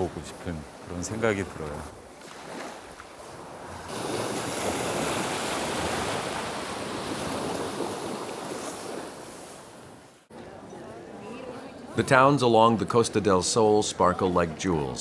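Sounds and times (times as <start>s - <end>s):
wave breaking on beach: 0.0s - 10.0s.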